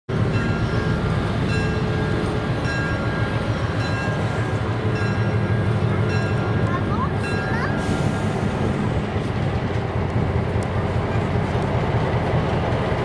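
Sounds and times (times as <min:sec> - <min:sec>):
locomotive bell ringing: 0:00.1 - 0:08.0
diesel locomotive rumbling: 0:00.1 - 0:13.0.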